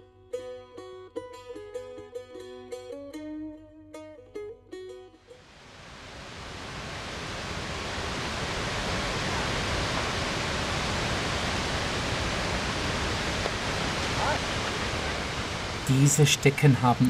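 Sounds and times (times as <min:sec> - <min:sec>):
flowing water rushing: 0:05.4 - 0:17.0.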